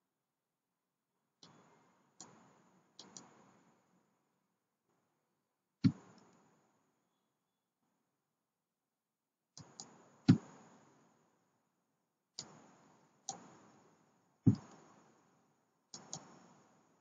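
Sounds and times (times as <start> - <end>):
mouse and keyboard clicks: 3.0 - 3.3, 9.6 - 10.5, 14.5 - 14.9, 16.0 - 16.5.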